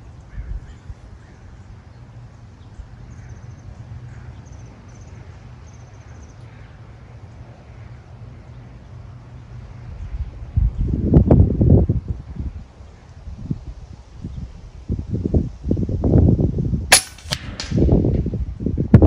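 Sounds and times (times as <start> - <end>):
wind rumble on microphone: 0.0 - 3.2, 9.6 - 19.0.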